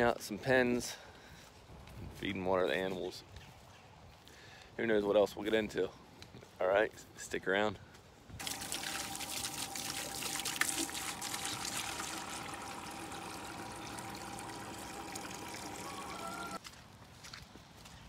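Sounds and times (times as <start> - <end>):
water running and trickling: 8.4 - 16.6.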